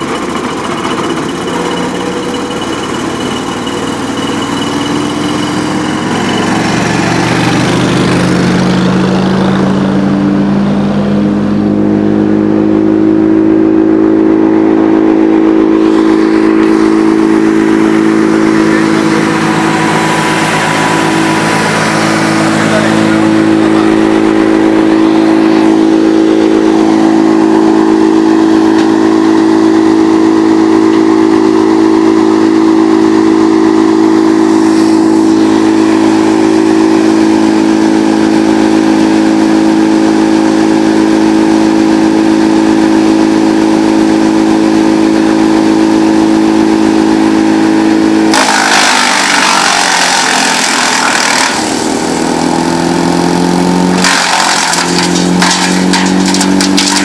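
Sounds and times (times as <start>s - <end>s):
wood chipper engine running: 0.0s - 57.0s.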